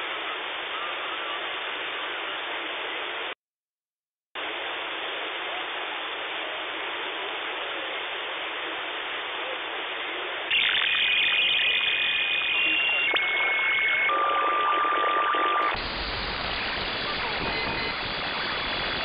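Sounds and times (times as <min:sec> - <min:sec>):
radio receiver hiss: 0:04.4 - 0:19.0
steady whistling radio tones: 0:10.5 - 0:19.0.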